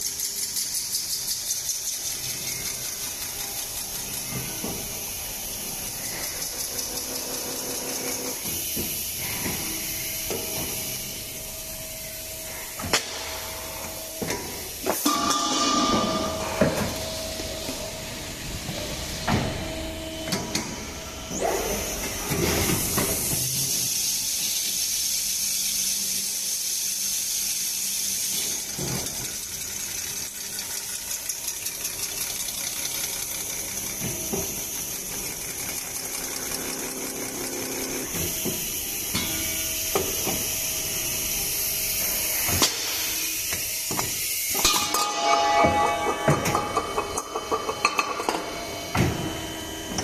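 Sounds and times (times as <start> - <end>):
machine high hiss: 0.3 - 19.2, 21.3 - 49.8
machine clank: 14.9 - 17.1.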